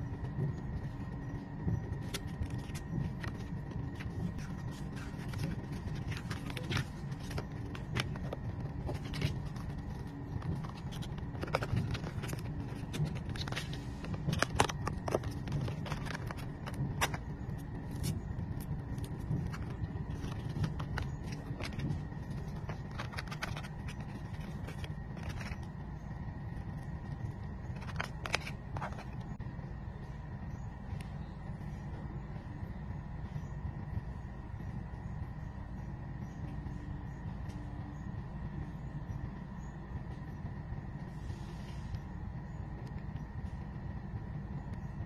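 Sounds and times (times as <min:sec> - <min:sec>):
low background rumble: 0:00.0 - 0:45.0
cardboard packaging handled: 0:02.0 - 0:25.7.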